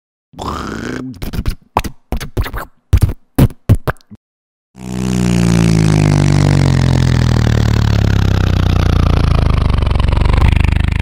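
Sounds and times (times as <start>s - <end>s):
vehicle engine running: 4.8s - 11.0s.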